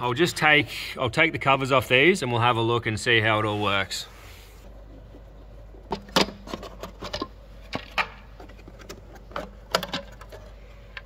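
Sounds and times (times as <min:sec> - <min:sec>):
plastic clicks and knocks: 0:05.9 - 0:10.4.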